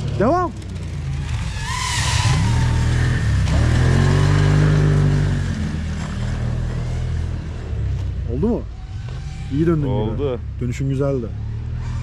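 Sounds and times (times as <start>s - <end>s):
snowmobile engine revving: 0.0s - 7.6s.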